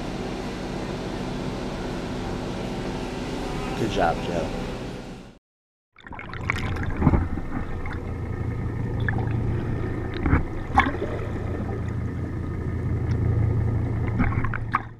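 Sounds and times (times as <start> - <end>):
boat engine drone underwater: 6.0 - 14.9
rushing bubbling water: 6.0 - 14.9.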